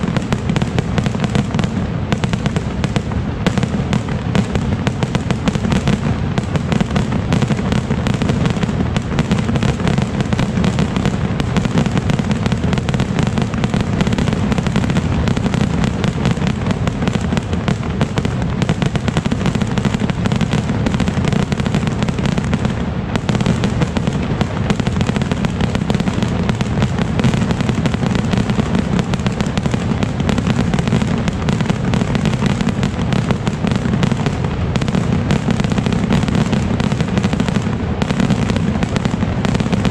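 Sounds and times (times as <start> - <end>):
fireworks launching and bursting: 0.0 - 39.9.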